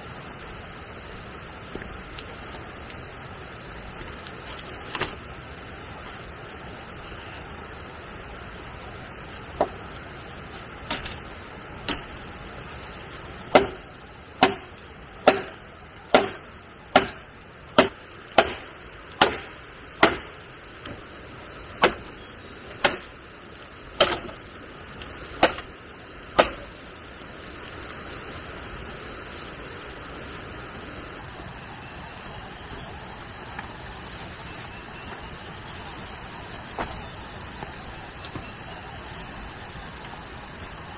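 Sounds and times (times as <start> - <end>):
background hiss: 0.0 - 40.9
tool chopping: 13.5 - 13.8, 14.4 - 17.2, 17.8 - 21.0, 21.8 - 22.1, 25.4 - 25.7, 26.3 - 26.7.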